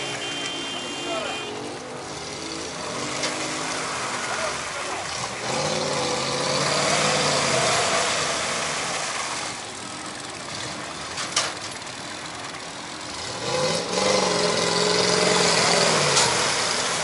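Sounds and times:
engines revving: 0:00.0 - 0:17.0.

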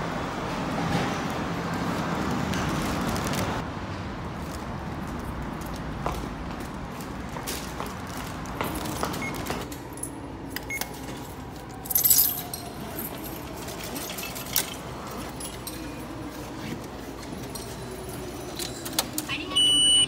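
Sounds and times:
coins jingling: 0:10.9 - 0:19.2.

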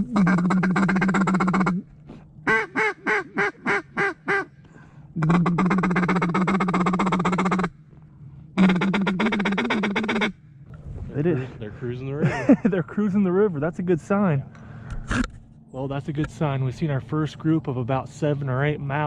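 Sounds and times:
duck call quacks: 0:00.0 - 0:01.8, 0:02.4 - 0:04.6, 0:05.2 - 0:07.7, 0:08.6 - 0:10.4
duck call chatter: 0:00.0 - 0:04.6, 0:05.2 - 0:07.8, 0:08.6 - 0:10.4.

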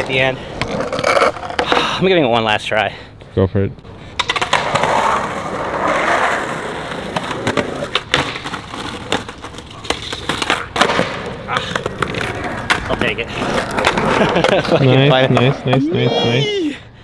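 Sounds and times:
skateboard wheels rumbling on concrete: 0:00.0 - 0:02.0, 0:04.1 - 0:15.8
skateboard clacks: 0:04.2 - 0:05.2, 0:06.9 - 0:15.7.

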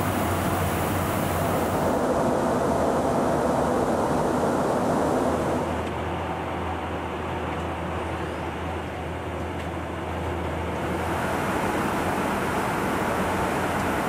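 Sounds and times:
jet aircraft cabin noise: 0:00.0 - 0:07.1, 0:10.6 - 0:14.0.

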